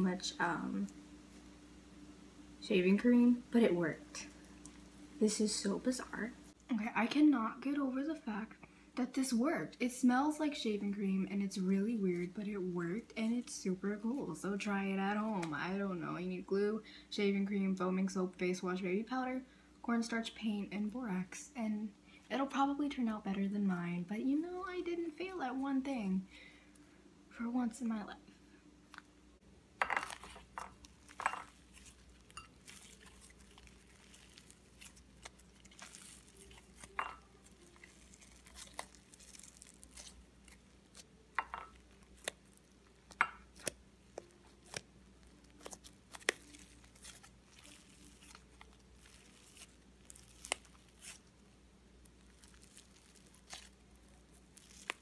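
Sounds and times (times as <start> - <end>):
slime squelching: 30.0 - 51.4, 52.0 - 55.0.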